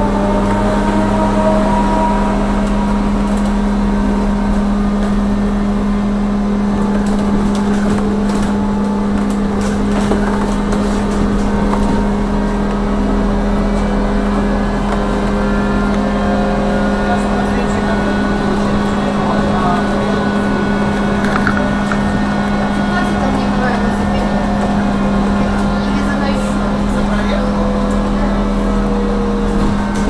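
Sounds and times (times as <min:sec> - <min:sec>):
electric hum and motor whine: 0:00.0 - 0:30.0
tyre and road noise: 0:00.0 - 0:30.0.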